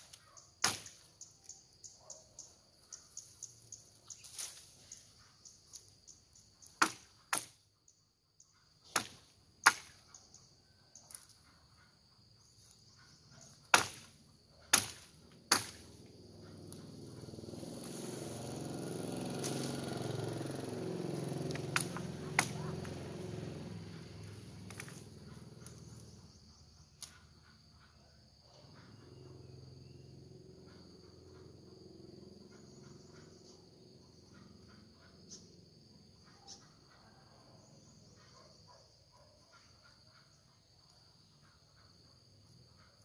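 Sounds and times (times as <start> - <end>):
machete chopping bamboo: 0.0 - 1.1, 6.8 - 7.6, 8.9 - 10.0, 13.7 - 16.0, 21.5 - 23.0, 24.6 - 25.0
insects chirring: 0.0 - 43.0
rustling of cut stems and leaves: 17.5 - 23.0.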